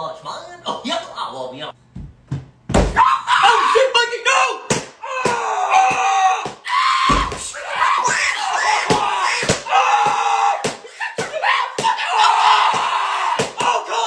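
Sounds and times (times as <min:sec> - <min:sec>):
person screaming: 0:03.0 - 0:14.0.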